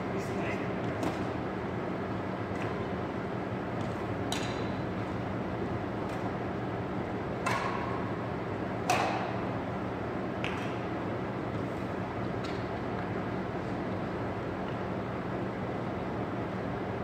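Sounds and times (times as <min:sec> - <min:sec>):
racket hitting shuttlecock: 0:03.8 - 0:04.8, 0:07.4 - 0:08.0, 0:08.8 - 0:09.4.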